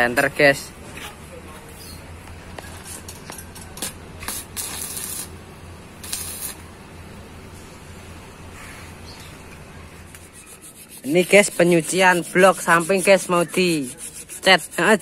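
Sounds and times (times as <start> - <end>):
steady low hum: 0.0 - 15.0
spray paint hissing: 3.8 - 5.4, 6.0 - 6.6.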